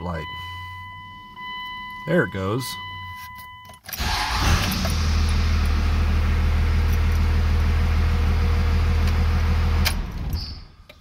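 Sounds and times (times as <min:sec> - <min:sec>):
diesel engine starting and idling: 0:03.9 - 0:10.9.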